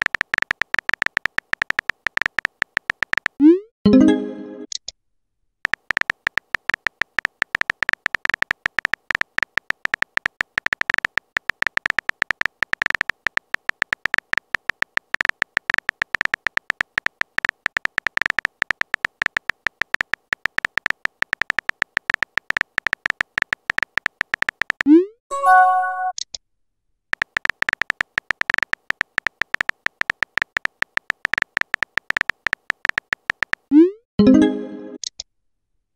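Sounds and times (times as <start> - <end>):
keyboard tap clicks: 0.0 - 3.4, 5.6 - 24.9, 27.2 - 33.7
short chime: 25.3 - 26.1.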